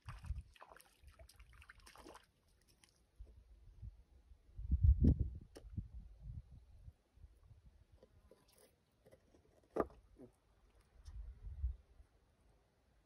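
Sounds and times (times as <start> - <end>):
fish splashing and dripping: 0.0 - 3.1
wind on microphone: 3.7 - 7.8, 11.0 - 11.8.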